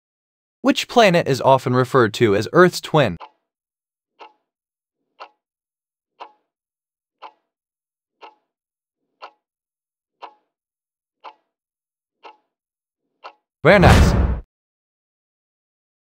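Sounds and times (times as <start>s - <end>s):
clock ticking: 1.6s - 3.4s, 4.2s - 4.4s, 5.2s - 5.4s, 6.2s - 6.5s, 7.2s - 7.5s, 8.2s - 8.5s, 9.2s - 9.5s, 10.2s - 10.5s, 11.2s - 11.5s, 12.2s - 12.5s.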